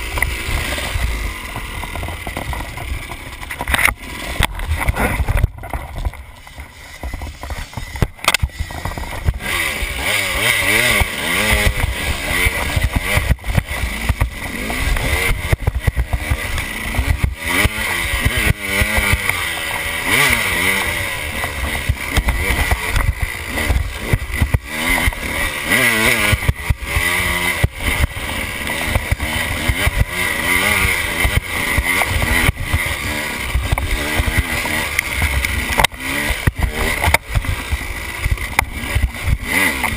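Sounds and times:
dirt bike engine revving: 0.0s - 39.9s
knocks and rattles: 0.1s - 9.5s.

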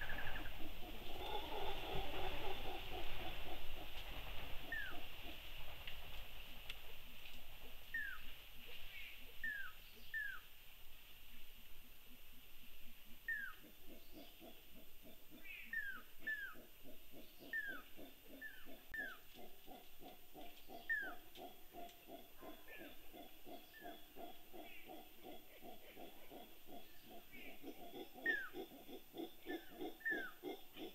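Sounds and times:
howler monkeys grunting roars: 0.0s - 3.6s, 17.6s - 30.9s
insect hum: 0.0s - 5.8s, 6.4s - 30.9s.

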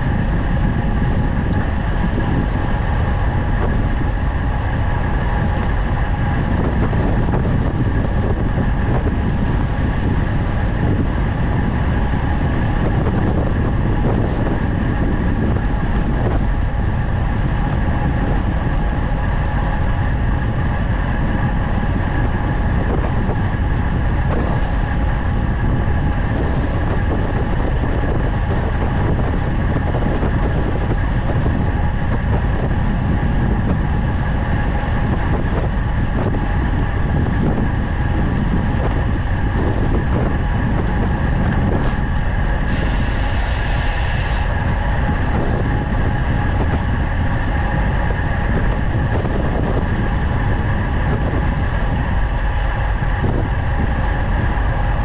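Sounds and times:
road noise: 0.0s - 55.0s
wind on microphone: 0.0s - 55.0s
bright hiss: 42.7s - 44.5s.

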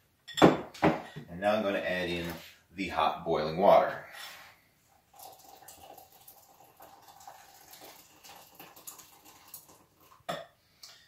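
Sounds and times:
water trickling into a bowl: 5.0s - 10.3s.

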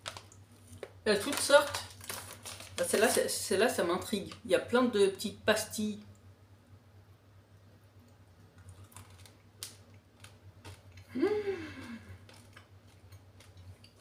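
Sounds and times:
plastic bag crinkling: 0.0s - 4.5s, 8.7s - 11.0s, 12.1s - 13.9s
woman humming hmm: 11.1s - 12.2s.

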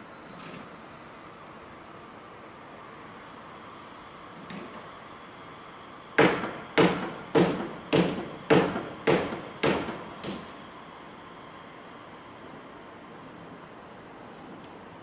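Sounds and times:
loud bangs of striking: 6.2s - 10.5s.

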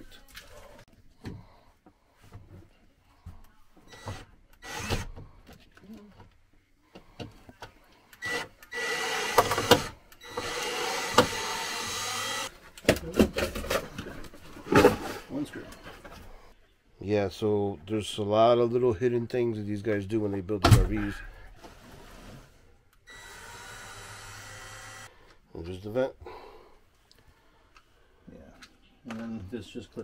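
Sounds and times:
handheld power tool running: 8.2s - 12.5s, 23.1s - 25.1s.

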